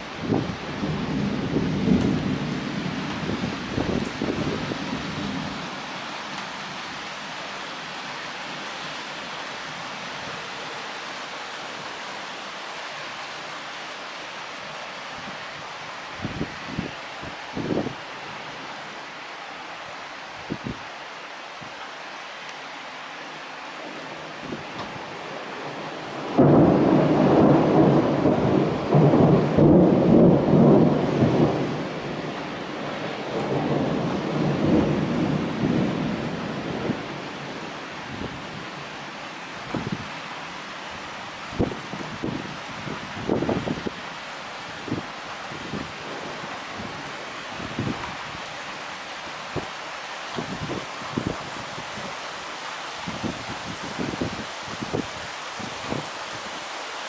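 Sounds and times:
heavy rain downpour: 0:00.0 - 0:57.0
thunder rumble: 0:00.2 - 0:06.5, 0:23.8 - 0:38.4.

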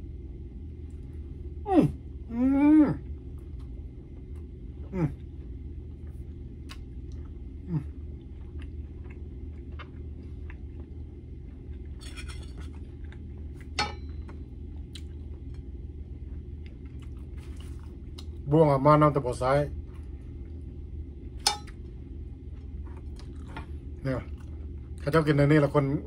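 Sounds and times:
low room hum: 0:00.0 - 0:26.0
person chewing: 0:03.3 - 0:12.0, 0:12.6 - 0:18.4, 0:22.5 - 0:25.0.

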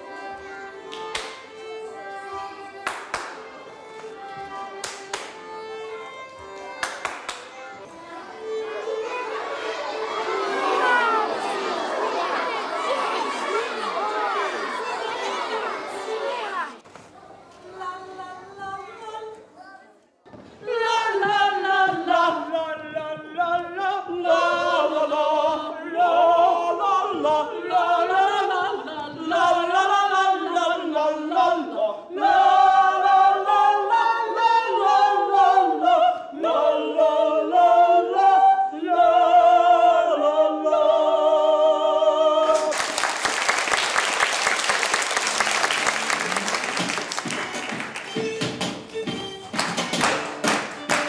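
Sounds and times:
audience applause: 0:00.0 - 0:04.1, 0:04.8 - 0:05.6, 0:06.4 - 0:16.8, 0:42.4 - 0:51.0
group singing unaccompanied: 0:08.4 - 0:16.6, 0:20.6 - 0:42.7.

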